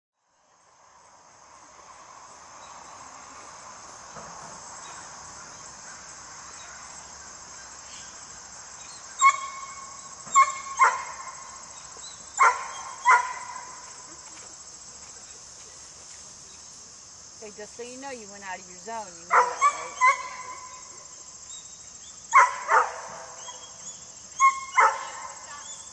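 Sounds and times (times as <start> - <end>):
crickets chirring: 0.3 - 25.9
dog barking: 10.4 - 11.4, 12.4 - 13.7, 19.3 - 20.8, 22.3 - 23.7, 24.4 - 25.4.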